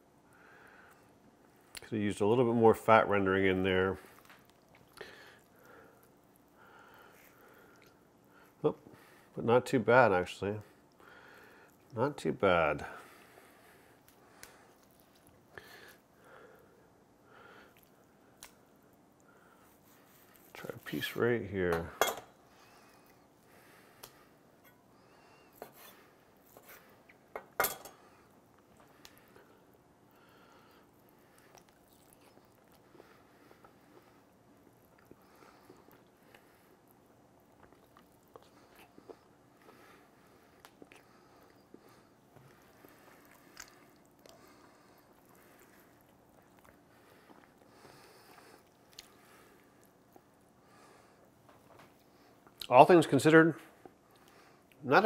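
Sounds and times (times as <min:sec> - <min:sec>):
meat squishing: 0:14.0 - 0:16.1.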